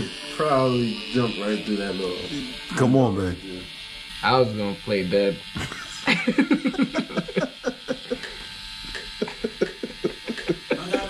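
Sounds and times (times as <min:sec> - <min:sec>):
tattoo machine buzzing: 0:00.0 - 0:11.0
person laughing: 0:05.6 - 0:11.0.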